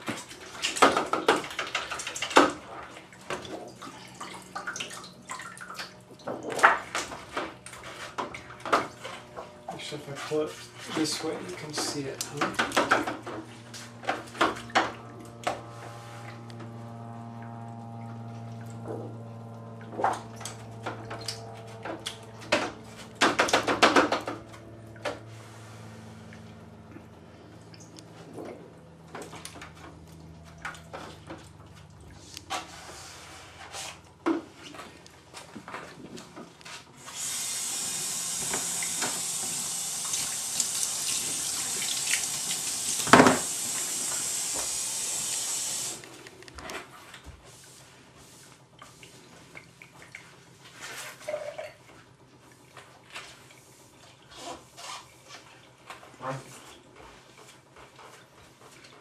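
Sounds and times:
steady low hum: 2.6 - 43.0
spraying water hiss: 37.0 - 46.0.

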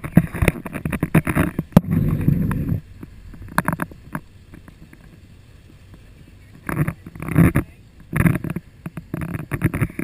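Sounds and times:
boat motor humming: 0.0 - 10.0
rush of wind and water: 0.0 - 10.0.

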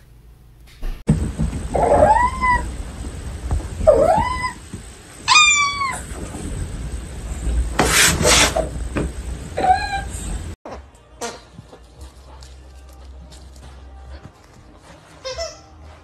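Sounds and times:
cat meowing: 1.8 - 2.7, 3.8 - 4.6, 5.2 - 6.1.

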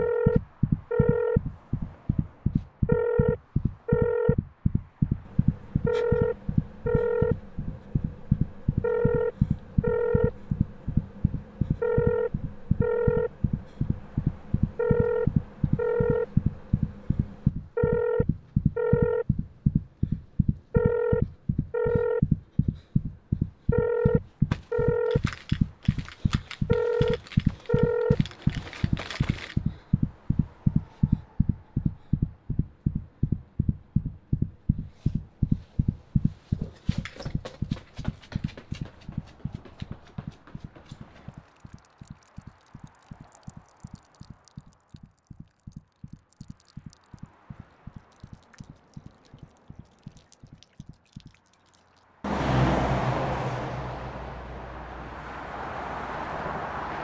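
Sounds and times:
telephone ringing: 0.0 - 1.4, 2.9 - 4.4, 5.4 - 7.6, 8.3 - 10.6, 11.8 - 13.4, 14.8 - 16.8, 17.8 - 18.2, 18.8 - 19.2, 20.8 - 22.2, 23.7 - 29.5
low heartbeat-like thudding: 0.3 - 25.8, 29.6 - 37.7, 45.3 - 49.9.

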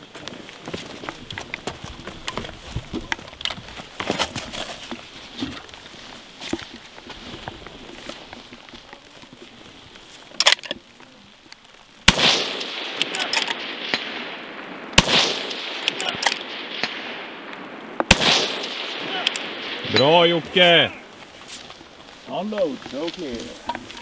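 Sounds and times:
rifle shots with echo: 12.0 - 20.4.

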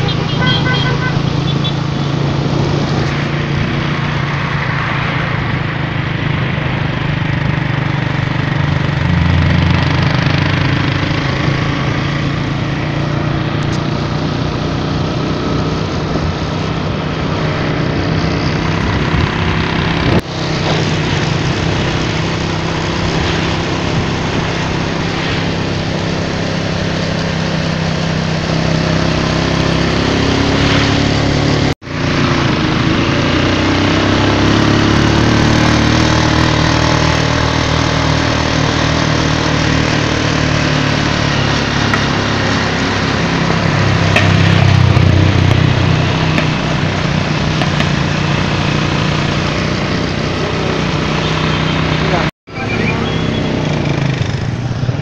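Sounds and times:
motorcycle engine cruising: 0.0 - 55.0
road noise: 0.0 - 55.0
wind noise: 15.4 - 28.8.

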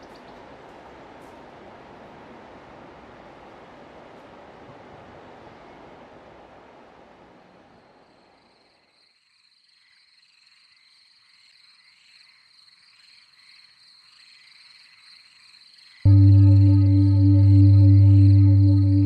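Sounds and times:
chirring frogs and insects: 0.0 - 0.8, 7.4 - 19.0
low outdoor hiss: 0.0 - 9.0
steady high whine: 16.1 - 19.0.

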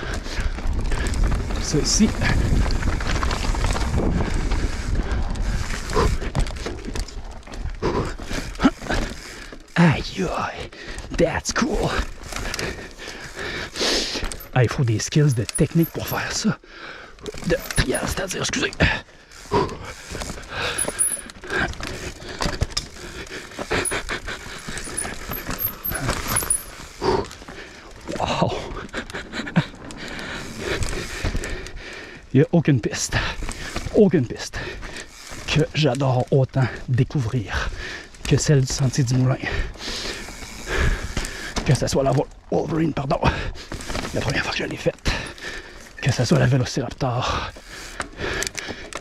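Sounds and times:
wind rumbling on microphone: 0.0 - 7.9
rider breathing hard: 0.0 - 9.8, 10.6 - 11.2, 11.9 - 14.6, 15.2 - 18.2, 18.8 - 32.4, 33.1 - 35.5, 37.5 - 38.3, 39.4 - 41.7, 43.2 - 44.3, 44.9 - 46.0, 47.2 - 49.0
tyres crunching over rock: 0.0 - 11.4, 17.2 - 31.5
bike rattling: 0.0 - 49.0.

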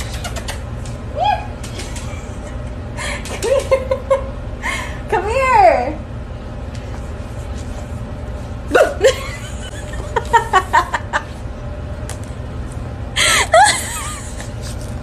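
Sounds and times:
person laughing: 1.8 - 4.4, 8.7 - 11.4, 13.2 - 14.6.

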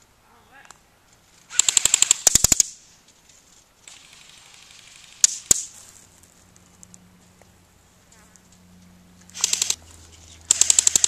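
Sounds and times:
airsoft rifle full-auto burst: 1.5 - 2.8, 3.8 - 5.7, 9.3 - 9.8, 10.5 - 11.0.

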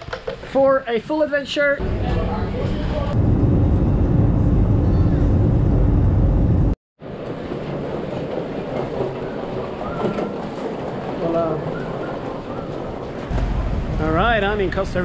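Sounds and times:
jet engines heard from cabin: 1.8 - 10.4
airport terminal background noise: 7.1 - 13.9.

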